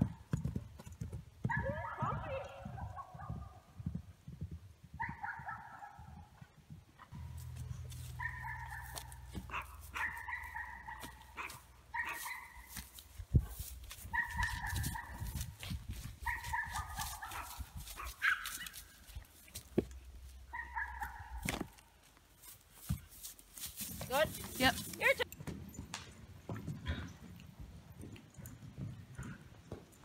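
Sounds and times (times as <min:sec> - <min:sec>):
horses walking through dry grass: 0:06.4 - 0:30.0.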